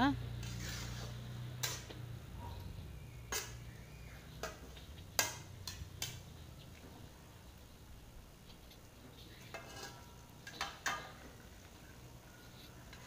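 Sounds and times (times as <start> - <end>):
metal spatula scraping wok: 0.3 - 2.2, 2.8 - 6.6, 9.0 - 13.0.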